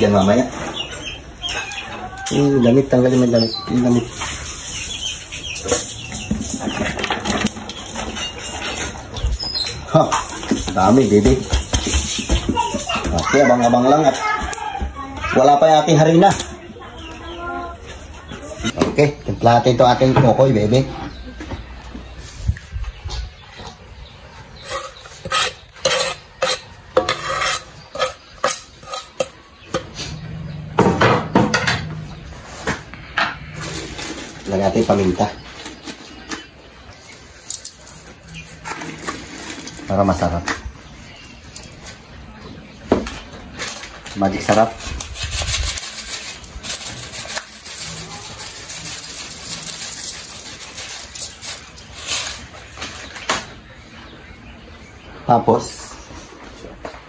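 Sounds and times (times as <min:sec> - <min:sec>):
rubbing and rustling in bowl: 0:03.6 - 0:14.3, 0:37.0 - 0:40.5, 0:43.4 - 0:53.2
spoon scraping a mixing bowl: 0:24.6 - 0:29.4.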